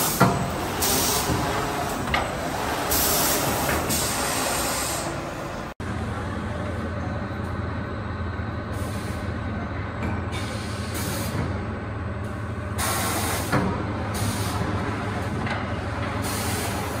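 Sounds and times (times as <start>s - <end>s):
compressed air hissing: 0.0s - 1.8s, 2.8s - 5.3s
machine clunk: 0.0s - 4.3s.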